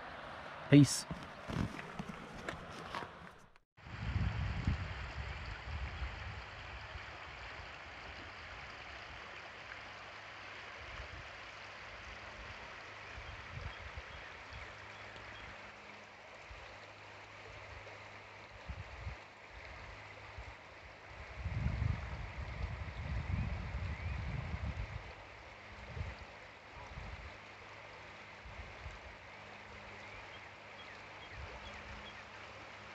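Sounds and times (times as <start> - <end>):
river water rushing over gravel: 6.4 - 13.2.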